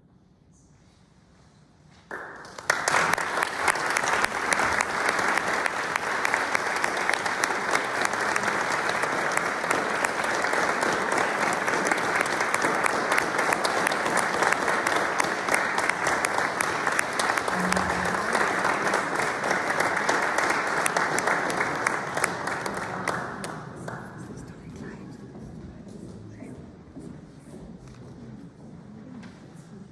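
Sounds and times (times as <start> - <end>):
audience applauding: 2.1 - 24.2.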